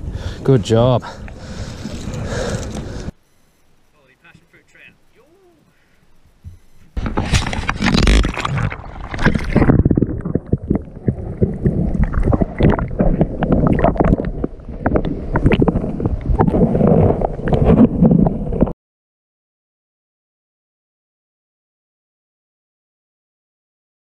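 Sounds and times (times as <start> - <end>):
underwater sloshing and gurgling: 6.5 - 18.7
water splashing: 7.0 - 18.7.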